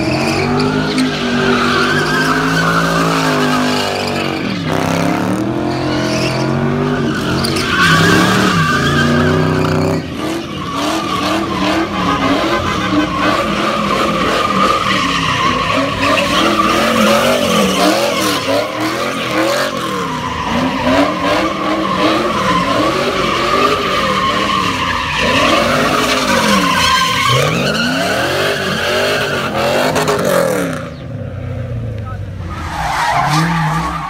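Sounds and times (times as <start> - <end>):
tyres squealing: 0.0 - 4.8, 5.7 - 30.0
car engine revving: 0.0 - 34.0.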